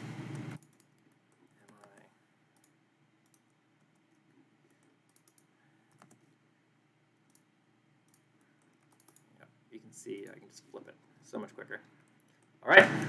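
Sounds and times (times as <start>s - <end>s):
keyboard and mouse clicks: 0.3s - 6.3s, 7.3s - 9.3s.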